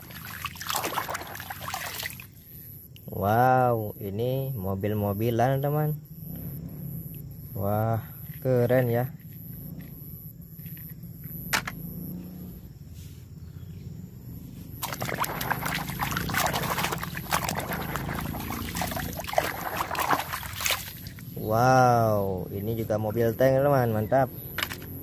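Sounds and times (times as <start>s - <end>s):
water splashing in basin: 0.0s - 2.4s, 14.8s - 21.4s.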